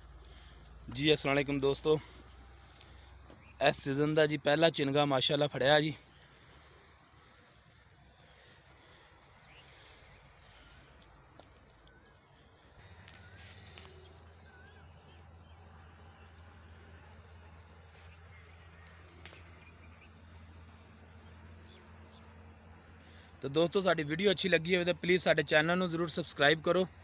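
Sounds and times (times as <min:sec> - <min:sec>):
low hum: 0:05.5 - 0:23.3
faint bird chirps: 0:05.9 - 0:23.4.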